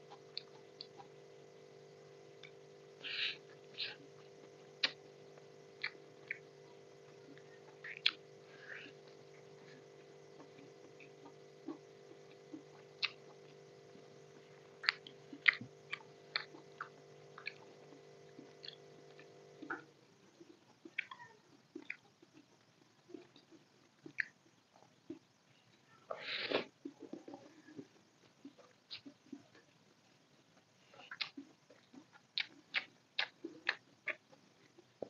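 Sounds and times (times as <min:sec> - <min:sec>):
steady background hum: 0:00.0 - 0:35.0
chewing food: 0:03.3 - 0:25.3, 0:26.5 - 0:29.8, 0:30.6 - 0:34.9
mouth clicks and wet smacks: 0:04.8 - 0:05.0, 0:10.4 - 0:13.4, 0:14.8 - 0:17.7, 0:20.8 - 0:22.4, 0:24.0 - 0:24.4, 0:28.4 - 0:29.3, 0:31.0 - 0:34.3.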